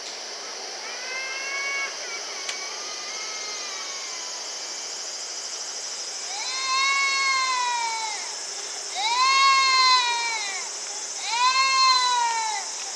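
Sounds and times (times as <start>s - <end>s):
high insect buzz: 0.0s - 12.9s.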